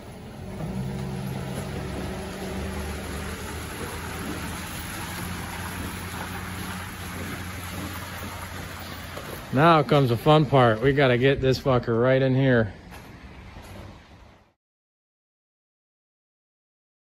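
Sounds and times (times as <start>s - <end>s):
pickup engine working steadily: 0.0s - 10.2s
tyres crackling over wet gravel: 0.0s - 13.9s.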